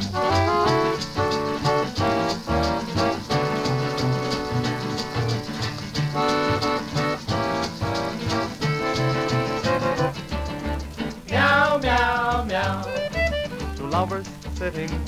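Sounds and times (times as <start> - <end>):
small band on old record: 0.0 - 15.0.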